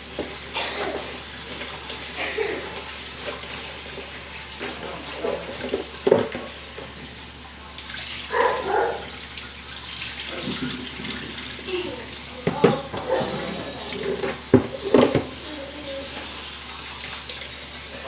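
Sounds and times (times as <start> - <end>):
tap running into sink: 4.6 - 7.1, 10.3 - 15.4
water splashing: 7.6 - 18.0
basin knocking against sink: 12.4 - 13.2.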